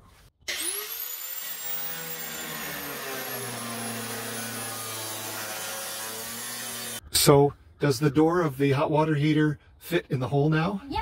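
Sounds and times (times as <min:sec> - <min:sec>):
angle grinder cutting steel: 0:00.5 - 0:07.0.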